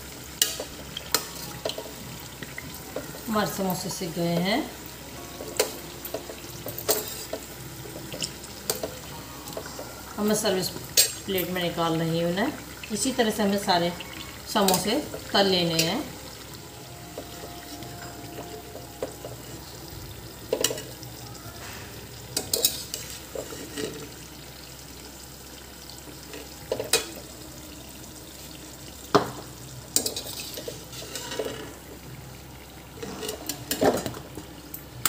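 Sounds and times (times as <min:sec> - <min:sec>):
food deep-frying in hot oil: 0:00.0 - 0:35.0
metal spoon clinking against pan: 0:00.4 - 0:03.3, 0:05.4 - 0:09.8, 0:10.6 - 0:11.6, 0:13.8 - 0:16.1, 0:22.4 - 0:24.0, 0:30.0 - 0:31.7.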